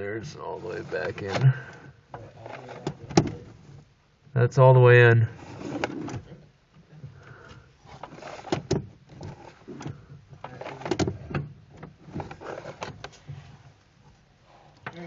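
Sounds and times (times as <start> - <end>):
metallic clicks and clunks: 8.0 - 13.3.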